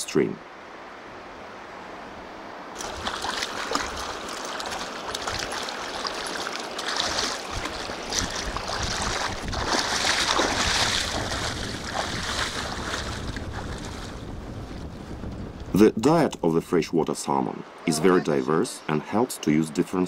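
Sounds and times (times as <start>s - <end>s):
river running over rocks: 2.5s - 14.2s
water splashing: 2.8s - 14.6s.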